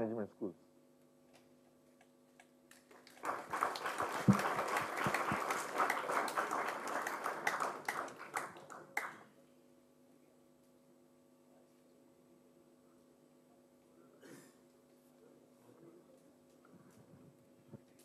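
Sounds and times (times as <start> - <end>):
audience applauding: 2.8 - 9.2.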